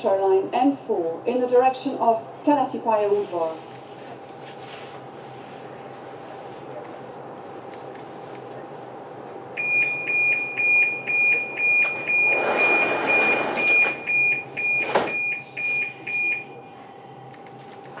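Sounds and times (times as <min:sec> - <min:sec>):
steady train hum: 0:00.0 - 0:09.6
high door warning beeps: 0:09.6 - 0:16.6
doors sliding shut: 0:11.8 - 0:14.0, 0:14.7 - 0:15.2.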